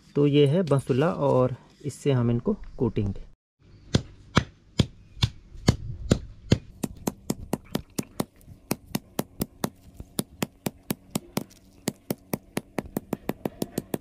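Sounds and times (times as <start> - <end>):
adze pounding stalks on stone: 3.9 - 14.0.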